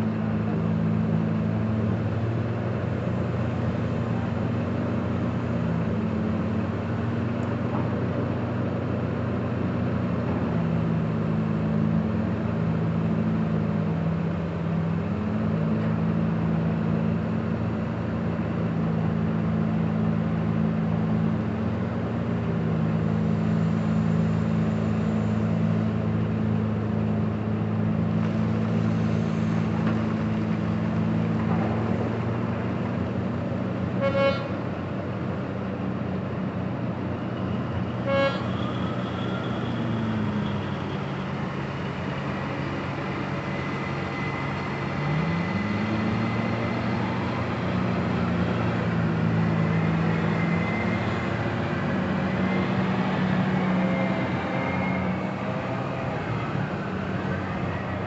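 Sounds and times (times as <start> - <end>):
excavator diesel engine running: 0.0 - 58.0
horn toots: 34.0 - 34.6, 38.0 - 39.4.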